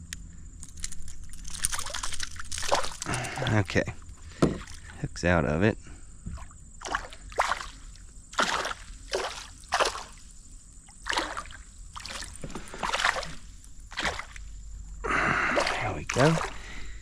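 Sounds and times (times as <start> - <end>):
water splashing in landing net: 1.7 - 3.6, 6.4 - 10.3, 10.9 - 14.5, 15.3 - 16.8.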